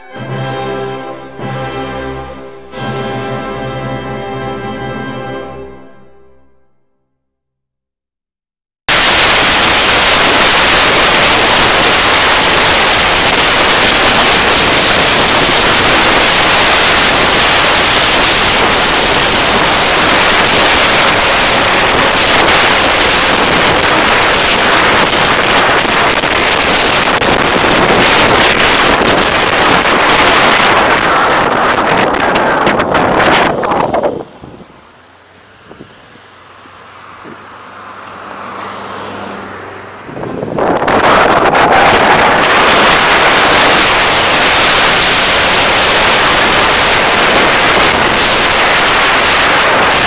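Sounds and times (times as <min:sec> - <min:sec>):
wind buffeting microphone: 0:09.0 - 0:34.8, 0:35.6 - 0:36.0, 0:40.0 - 0:50.0.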